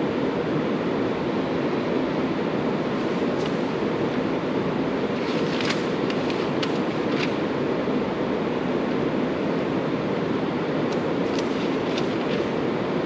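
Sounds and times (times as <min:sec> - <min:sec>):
low rushing room noise: 0:00.0 - 0:13.0
paper sheet crackling: 0:05.1 - 0:07.5, 0:10.9 - 0:12.6.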